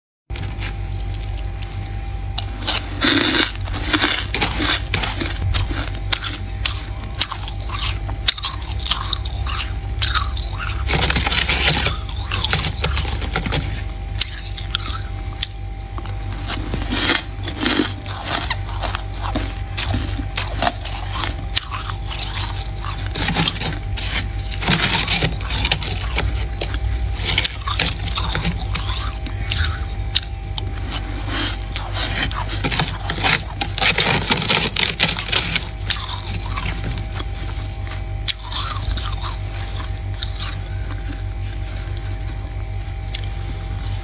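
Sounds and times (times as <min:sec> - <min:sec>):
metal spoon scraping frost: 0:02.5 - 0:15.1, 0:16.0 - 0:37.5.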